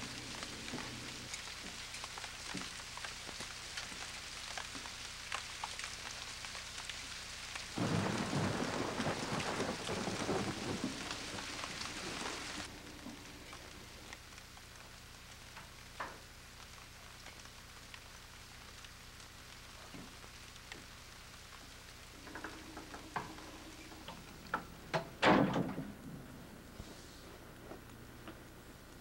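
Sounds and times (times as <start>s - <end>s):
rain hiss: 0.0s - 29.0s
deep thunder rumble: 7.8s - 13.1s.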